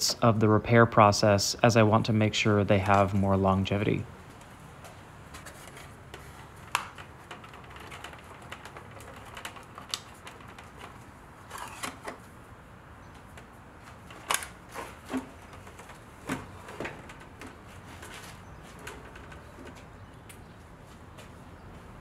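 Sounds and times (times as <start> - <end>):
hard plastic parts clicking: 5.4 - 12.3, 13.2 - 20.4.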